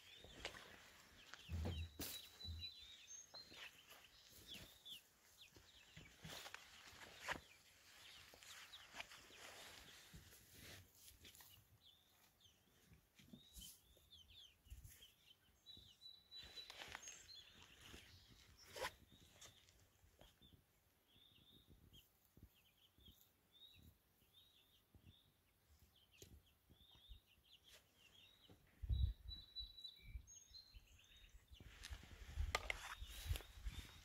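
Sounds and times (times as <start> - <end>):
chicks peeping: 0.0 - 32.1
rustling in grass: 5.9 - 11.6.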